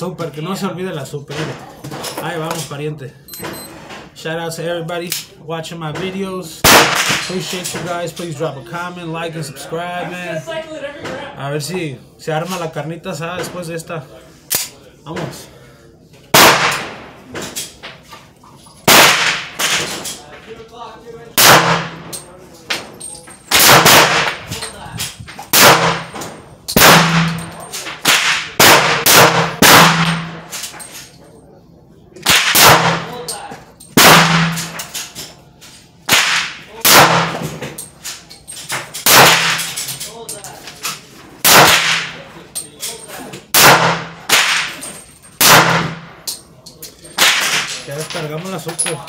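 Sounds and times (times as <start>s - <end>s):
pistol shots with echo: 6.6s - 7.3s, 16.3s - 17.2s, 18.8s - 20.0s, 21.4s - 22.2s, 23.5s - 24.5s, 25.5s - 30.7s, 32.2s - 33.3s, 34.0s - 34.9s, 36.1s - 37.5s, 39.0s - 39.8s, 41.4s - 42.2s, 43.5s - 44.8s, 45.4s - 46.2s, 47.2s - 47.8s.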